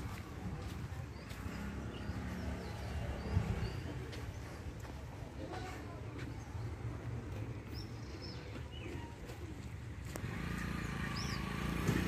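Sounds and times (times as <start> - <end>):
bird chirps: 10.8 - 11.8.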